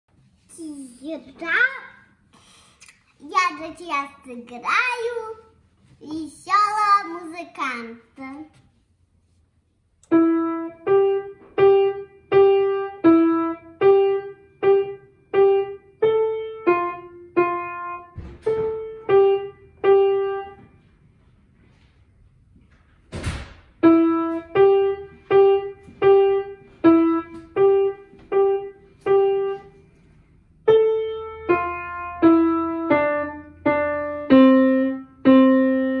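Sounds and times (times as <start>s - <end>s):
piano melody: 10.0s - 20.9s, 23.8s - 36.0s.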